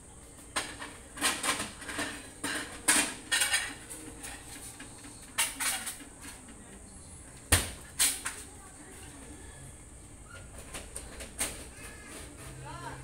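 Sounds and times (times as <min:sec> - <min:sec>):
kitchenware clinking and clattering: 0:00.6 - 0:06.6.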